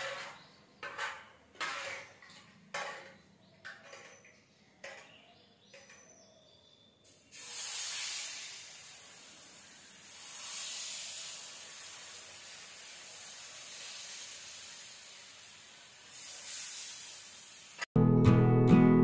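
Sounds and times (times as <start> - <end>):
batter sizzling on hot pan: 7.1 - 17.9
acoustic guitar music: 18.0 - 19.0.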